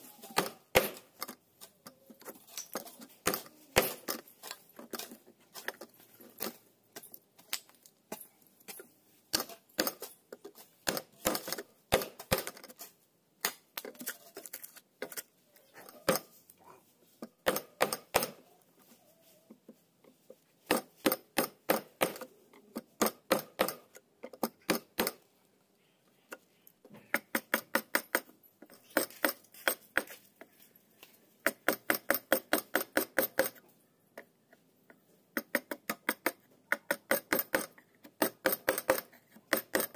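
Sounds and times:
hammer striking chisel: 0.4 - 1.1, 3.2 - 4.2, 10.8 - 12.6, 17.4 - 18.4, 20.7 - 25.2, 27.1 - 30.1, 31.4 - 33.6, 35.4 - 39.9.

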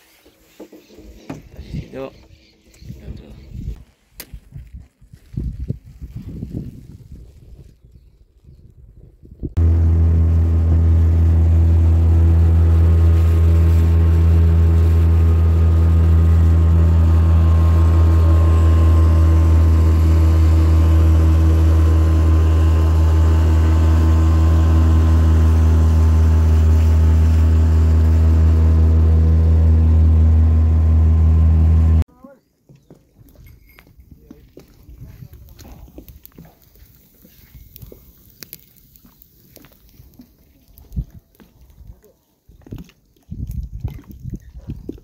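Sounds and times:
outboard motor running: 9.6 - 32.0.

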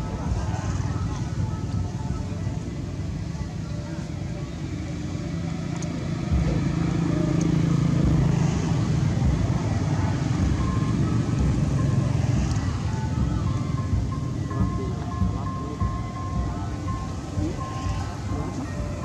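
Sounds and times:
road traffic engine rumble: 0.0 - 19.0.

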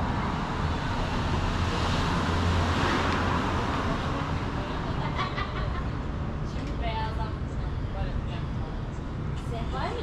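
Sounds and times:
street traffic: 0.0 - 10.0
vehicle passing: 0.0 - 10.0.

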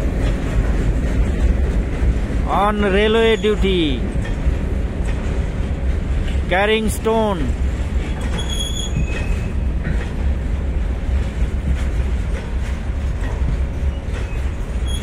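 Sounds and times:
train wheels rumbling on rail: 0.0 - 15.0.

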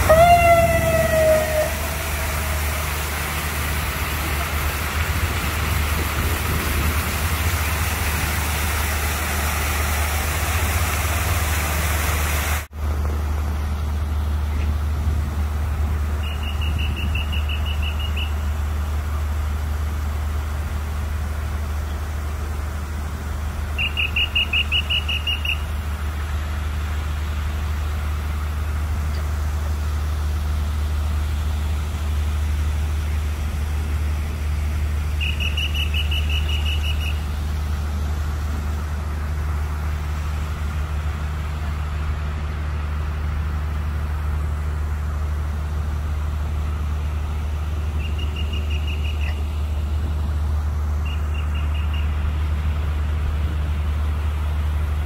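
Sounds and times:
traffic rumble: 0.0 - 55.0
hiss: 1.3 - 12.7.

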